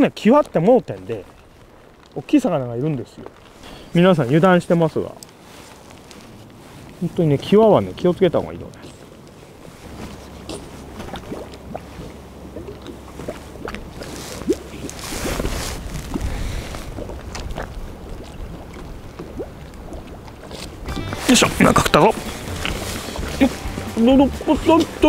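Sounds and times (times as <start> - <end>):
water washing: 0.0 - 25.0
wind buffeting microphone: 6.3 - 20.0.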